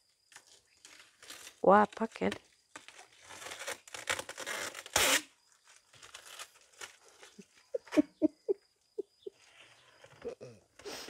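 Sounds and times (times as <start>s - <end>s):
packing material tearing: 0.4s - 5.3s, 5.9s - 7.4s.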